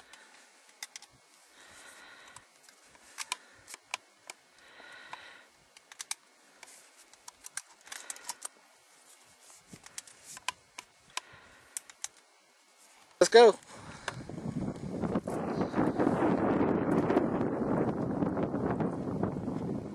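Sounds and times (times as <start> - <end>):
shotgun shells loading clicks: 5.8 - 6.2, 7.1 - 8.5.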